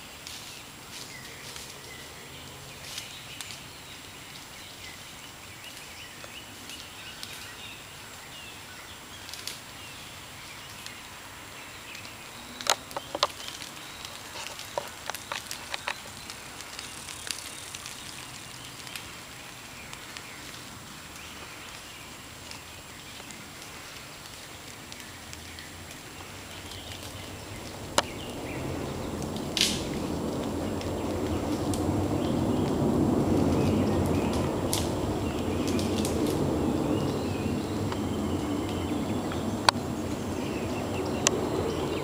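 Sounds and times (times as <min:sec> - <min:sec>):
steady outdoor hiss: 0:00.0 - 0:42.0
sharp clicks and snaps: 0:09.2 - 0:09.6, 0:11.9 - 0:19.1, 0:23.2 - 0:31.9, 0:33.5 - 0:36.4.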